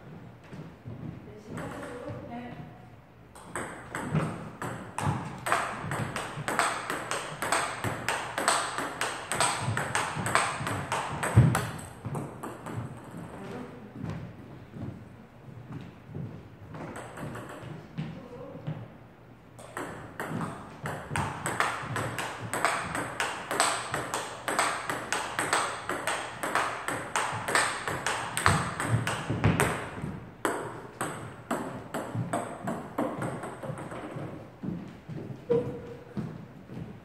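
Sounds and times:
table tennis ball hitting paddles: 0:00.4 - 0:02.3, 0:03.3 - 0:15.0, 0:15.7 - 0:18.8, 0:19.6 - 0:36.9.

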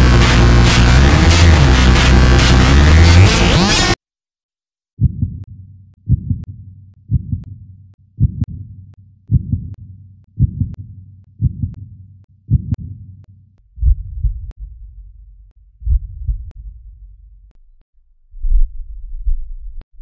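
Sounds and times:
heartbeat double thump: 0:05.0 - 0:05.4, 0:06.1 - 0:06.5, 0:07.1 - 0:07.5, 0:08.2 - 0:08.6, 0:09.3 - 0:09.8, 0:10.4 - 0:10.8, 0:11.4 - 0:11.8, 0:12.5 - 0:13.0, 0:13.7 - 0:17.2, 0:18.4 - 0:19.5.

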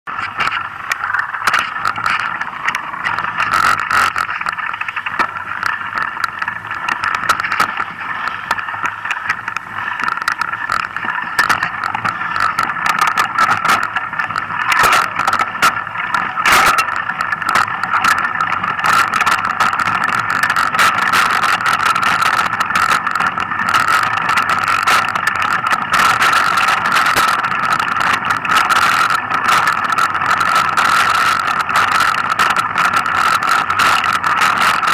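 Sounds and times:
bike rattling over bumps: 0:00.1 - 0:34.9.

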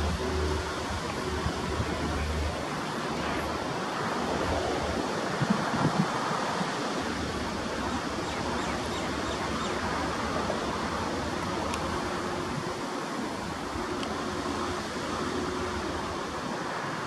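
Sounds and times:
low engine rumble: 0:00.0 - 0:05.1
train rushing on rails: 0:00.0 - 0:17.0.

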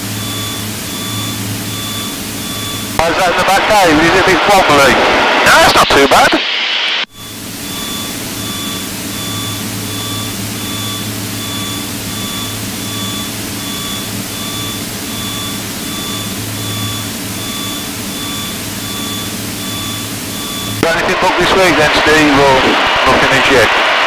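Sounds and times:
faint pulsing high tone: 0:00.0 - 0:04.3, 0:07.1 - 0:21.2
airplane cabin engine drone: 0:00.0 - 0:24.0.

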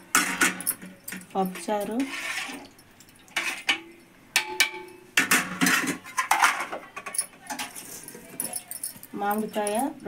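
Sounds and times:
metal spoon and lids clinking: 0:03.4 - 0:10.0.

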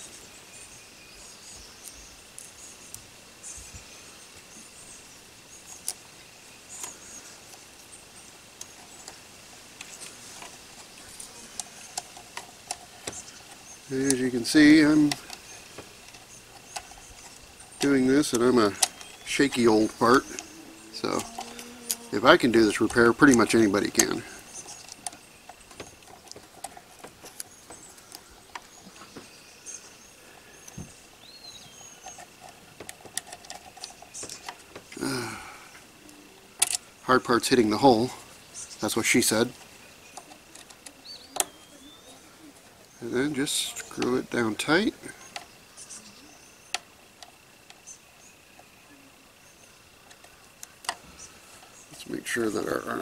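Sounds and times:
bird chirps: 0:00.0 - 0:32.7, 0:37.3 - 0:46.9
plastic parts clicking: 0:09.8 - 0:28.8, 0:32.0 - 0:35.2, 0:36.6 - 0:36.9, 0:38.8 - 0:41.6.

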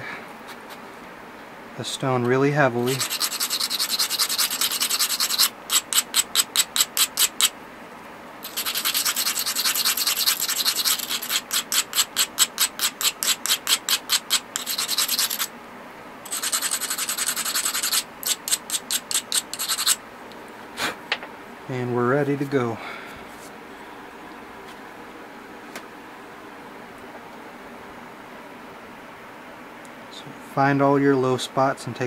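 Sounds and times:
steady rubbing on stone: 0:02.7 - 0:07.5, 0:08.4 - 0:15.5, 0:16.2 - 0:20.0
abrader scraping stone edge: 0:08.5 - 0:15.5.

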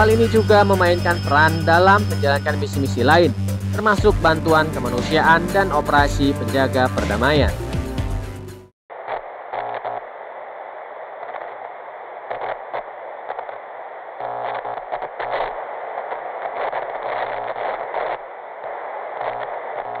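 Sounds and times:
radio static hiss with crackles: 0:08.9 - 0:20.0.

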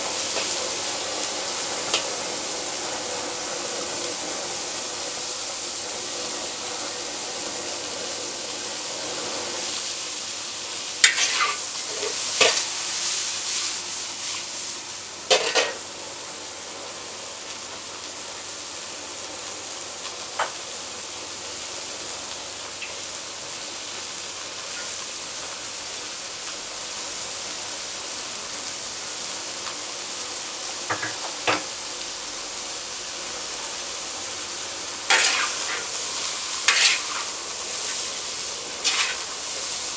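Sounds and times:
vegetables sizzling in a wok: 0:00.0 - 0:39.9
metal spatulas scraping a wok: 0:11.0 - 0:12.6, 0:15.3 - 0:15.8, 0:35.1 - 0:38.1, 0:38.8 - 0:39.3.

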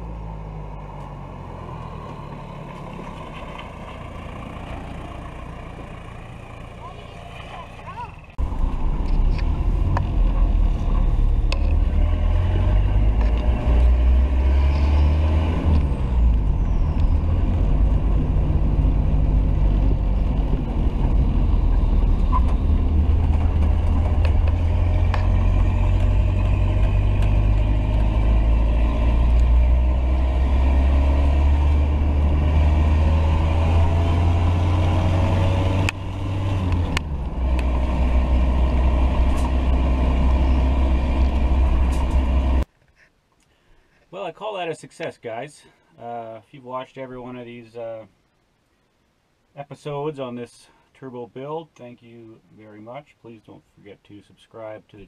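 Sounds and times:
diesel engine under load: 0:00.0 - 0:42.7.

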